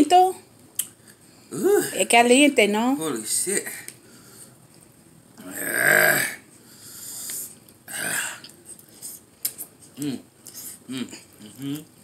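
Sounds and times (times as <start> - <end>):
man burping: 5.4 - 6.4, 7.9 - 8.4.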